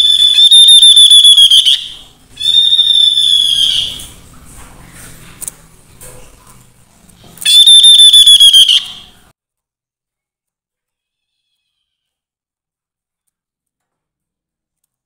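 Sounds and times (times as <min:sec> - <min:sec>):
bird whistling pulsing notes: 0:00.0 - 0:04.1, 0:07.5 - 0:09.0.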